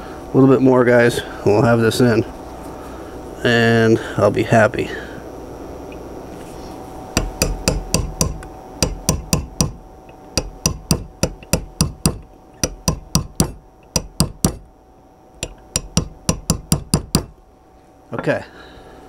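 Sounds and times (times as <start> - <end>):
hammer tapping metal punch: 7.2 - 14.7, 15.4 - 17.4.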